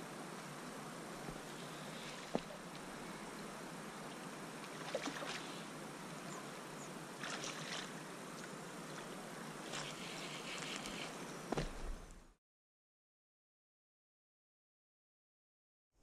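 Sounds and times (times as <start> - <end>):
creek water running: 0.0 - 12.0
water splashing: 1.3 - 3.0, 4.1 - 5.7, 7.2 - 10.0.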